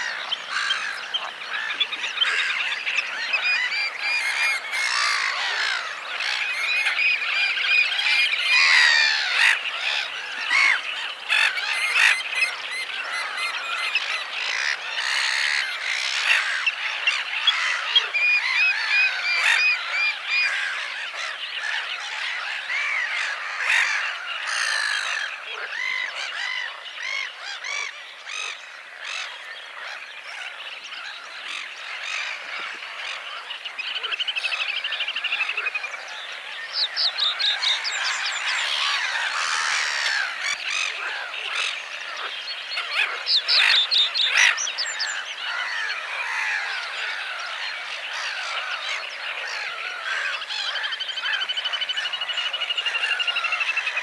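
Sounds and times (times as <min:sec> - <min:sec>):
bird trilling song: 0:00.0 - 0:54.0
chorus of marsh calls: 0:00.0 - 0:54.0.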